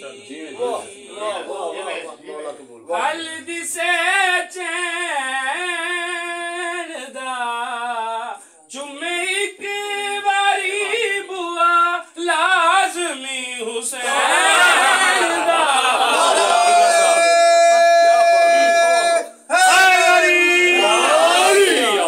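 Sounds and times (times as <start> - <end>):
man chanting unaccompanied: 0.0 - 14.0.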